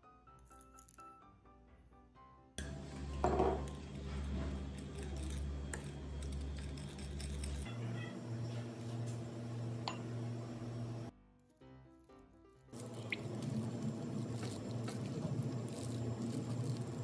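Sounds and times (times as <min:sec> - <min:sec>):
steady low hum: 0:02.6 - 0:11.1, 0:12.8 - 0:17.0
spoon scraping in ceramic bowl: 0:03.2 - 0:07.8
spoon tapping bowl: 0:09.8 - 0:10.2.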